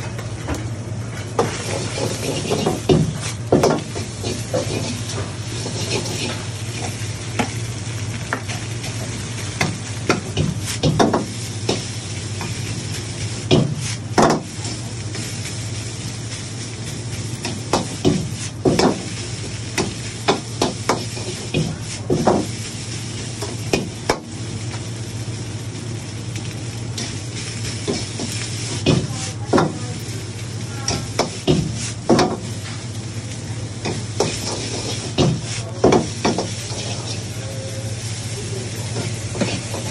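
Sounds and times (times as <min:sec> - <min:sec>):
food sizzling: 0:00.0 - 0:39.9
metal ladle scraping wok: 0:01.4 - 0:02.8, 0:04.3 - 0:06.4.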